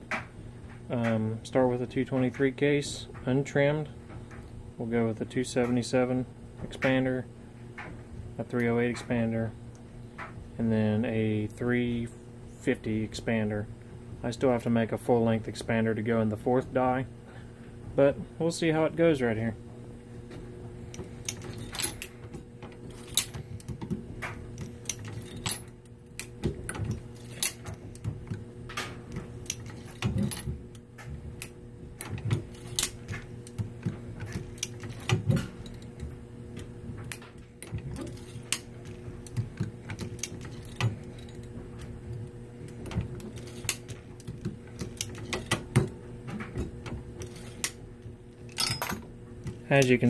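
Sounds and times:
steady low hum: 0.0s - 50.0s
brass cases clinking: 24.8s - 26.4s, 48.5s - 49.0s, 49.7s - 50.0s.

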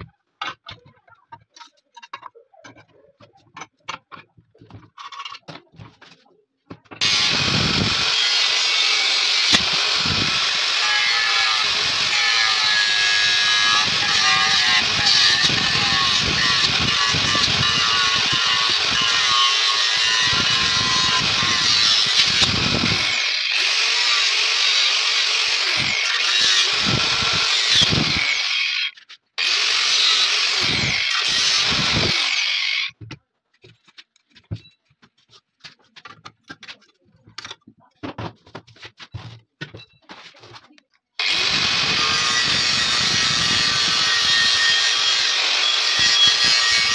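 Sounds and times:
angle grinder cutting metal: 7.0s - 33.0s, 41.2s - 46.9s.

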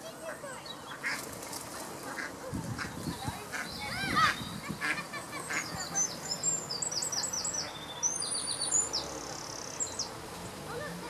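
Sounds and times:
songbird singing: 0.0s - 11.0s
duck calling: 2.2s - 5.8s.

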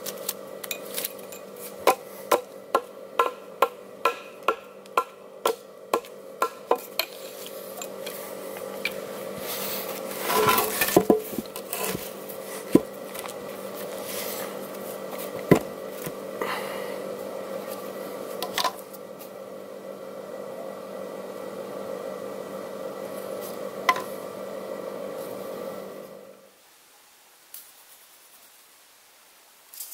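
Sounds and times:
hatchet chopping log: 1.8s - 7.0s.

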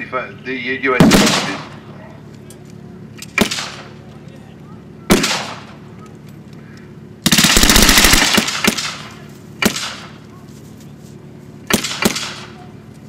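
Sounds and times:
automatic gunfire burst: 1.0s - 1.7s, 5.1s - 5.6s, 7.2s - 9.0s
single rifle shots echoing: 1.0s - 1.8s.

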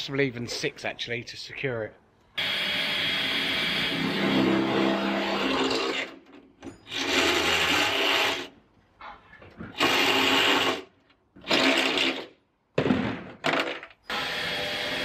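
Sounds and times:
electric drill boring through metal: 2.4s - 6.2s, 6.9s - 8.5s, 9.8s - 10.8s, 11.4s - 12.3s, 14.1s - 15.0s.

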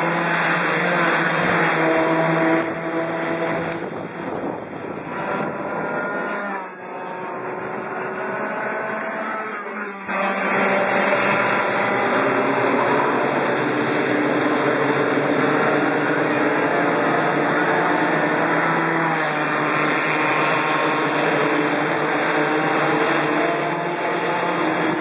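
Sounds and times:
kart engines revving: 0.0s - 25.0s.

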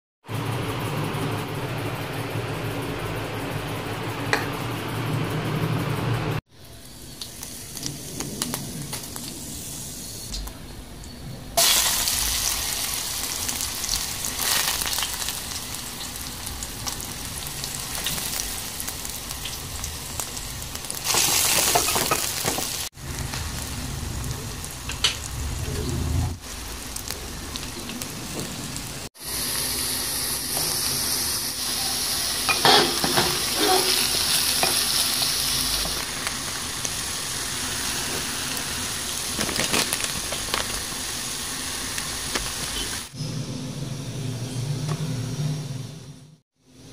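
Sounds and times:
vegetables sizzling in hot oil: 6.6s - 10.3s, 11.6s - 43.2s.

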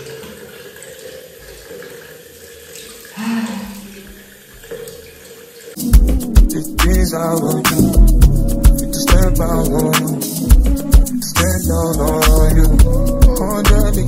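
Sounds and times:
tap running into a sink: 0.0s - 3.0s
music with a beat: 5.8s - 14.0s.

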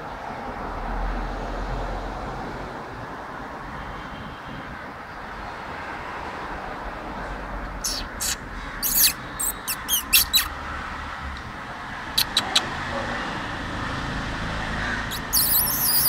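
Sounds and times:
kittens squeaking: 7.8s - 10.5s, 12.2s - 12.7s, 15.1s - 16.0s.

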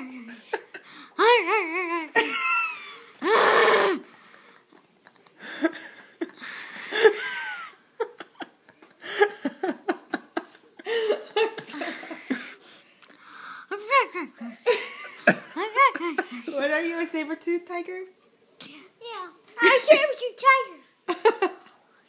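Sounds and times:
person laughing and giggling: 2.0s - 3.1s, 5.0s - 12.6s.

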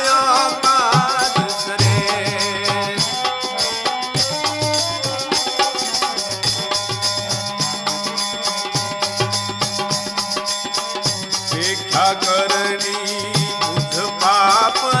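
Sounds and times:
hand drum beat: 1.2s - 3.3s.

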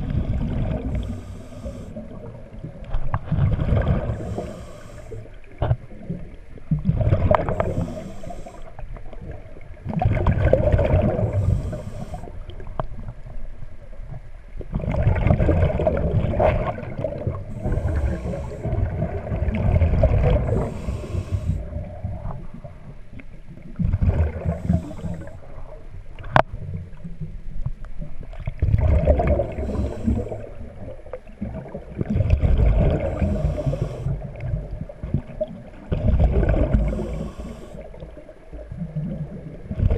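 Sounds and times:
exhaled bubbles gurgling: 0.0s - 39.9s
regulator inhalation hiss: 1.0s - 2.0s, 4.2s - 5.3s, 7.5s - 8.8s, 11.4s - 12.3s, 17.6s - 18.7s, 20.5s - 21.7s, 24.5s - 25.3s, 33.2s - 34.2s, 36.9s - 37.9s.

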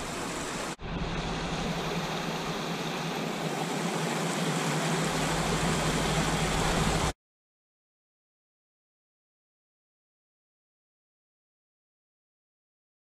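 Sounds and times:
creek pouring over rocks: 0.0s - 7.1s.

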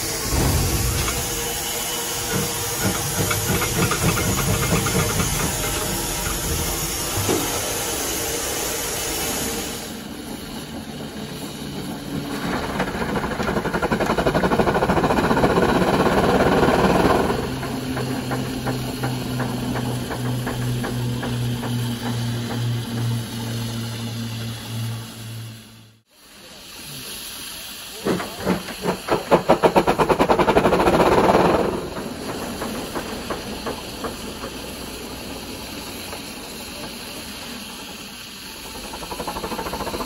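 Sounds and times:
steam engine beating: 0.0s - 40.0s
steam hissing: 0.0s - 40.0s.

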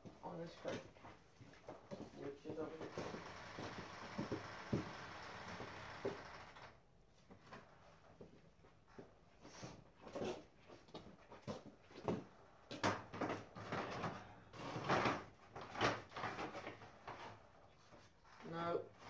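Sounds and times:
footsteps: 0.0s - 6.0s.

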